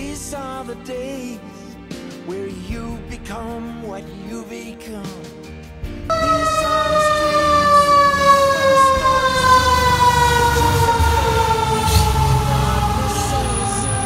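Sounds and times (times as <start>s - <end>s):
fire engine siren: 6.1s - 14.0s
truck engine running: 6.3s - 14.0s.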